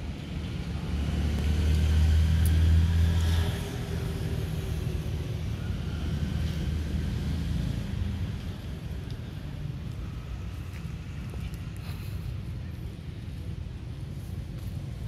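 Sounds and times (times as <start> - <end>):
vehicle passing: 0.3 - 11.8.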